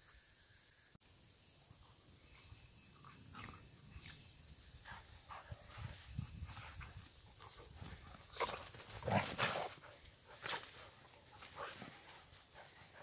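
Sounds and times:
dogs growling and snarling: 8.2 - 9.8.

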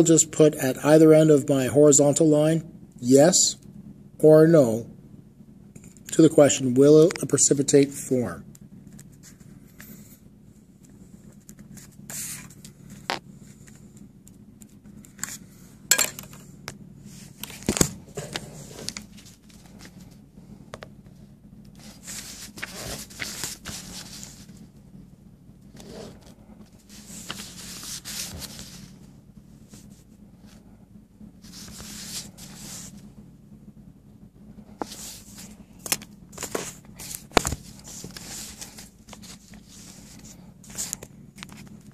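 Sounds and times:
low steady hum: 0.0 - 41.9
paper scraping and rustling: 8.9 - 10.0, 11.2 - 14.0, 17.0 - 20.2, 21.7 - 24.7, 25.7 - 30.7, 31.4 - 33.1, 34.8 - 41.9.

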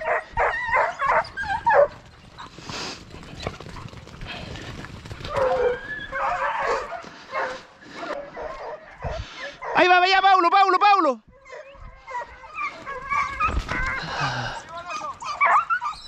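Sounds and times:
dogs yelping and whining: 0.0 - 2.6, 5.2 - 9.8, 11.3 - 16.0.

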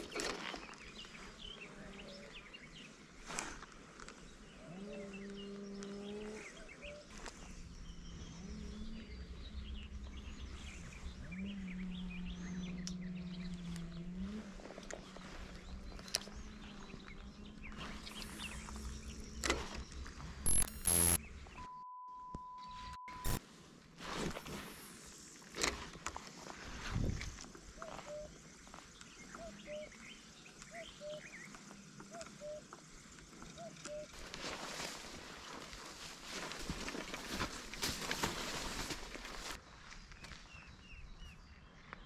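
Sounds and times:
small birds chirping: 0.0 - 23.4, 26.1 - 42.0
sharp clicks: 18.2 - 21.2.

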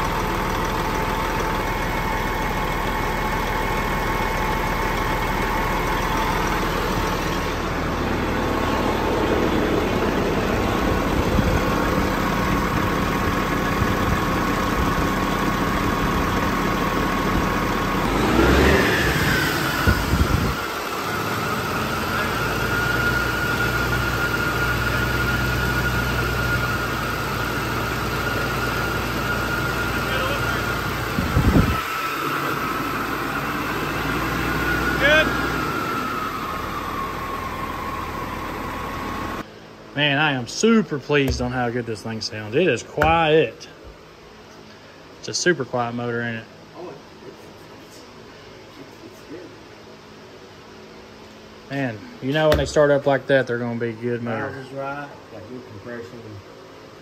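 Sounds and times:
diesel engine idling: 0.0 - 43.7.

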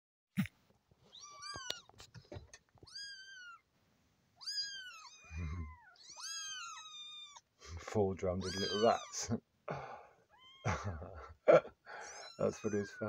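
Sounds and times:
kittens mewing: 4.4 - 13.0.

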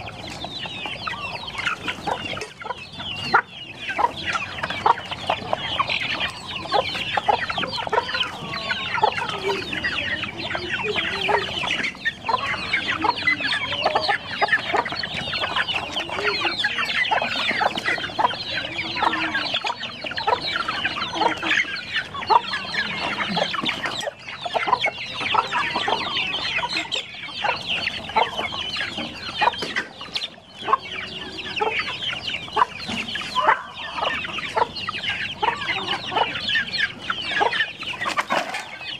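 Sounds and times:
chicks peeping: 0.0 - 38.9
hens clucking: 0.0 - 38.9.

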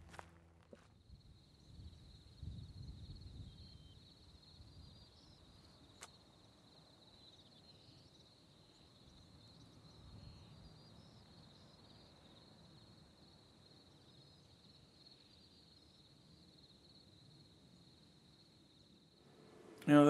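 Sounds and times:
high-pitched insect chorus: 1.1 - 20.0.

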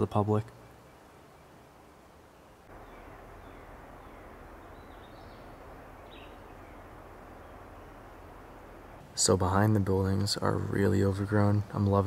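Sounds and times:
outdoor background hiss: 0.0 - 12.0
faint bird chirps: 0.4 - 9.0.

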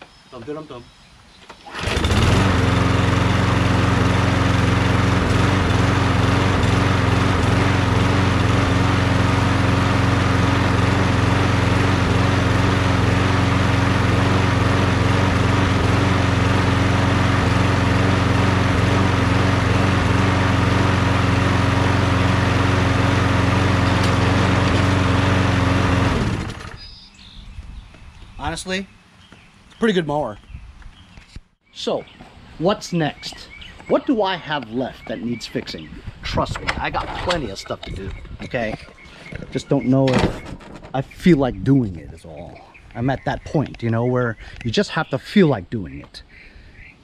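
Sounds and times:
lawn mower engine running: 1.4 - 27.4, 32.0 - 41.9.

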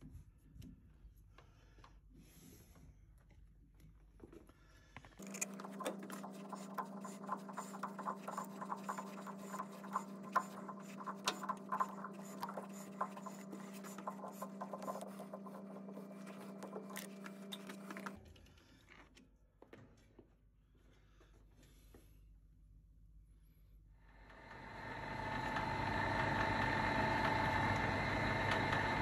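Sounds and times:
metal lathe humming: 5.2 - 18.2, 24.3 - 29.0.

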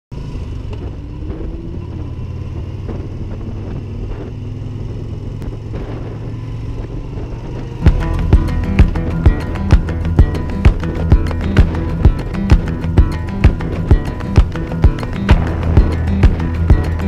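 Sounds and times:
motorcycle engine running: 0.1 - 17.0
road and wind noise: 0.1 - 17.0
music with plucked strikes: 7.8 - 17.0.

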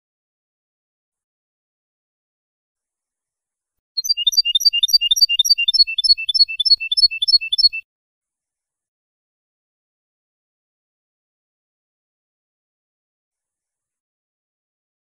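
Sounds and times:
finch chirping song: 4.0 - 7.8.

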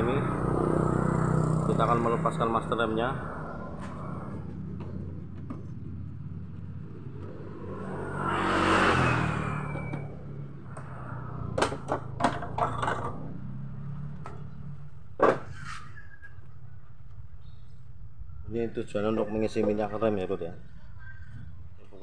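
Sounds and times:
steady low hum: 0.0 - 11.9
vehicle passing by: 0.0 - 15.8.

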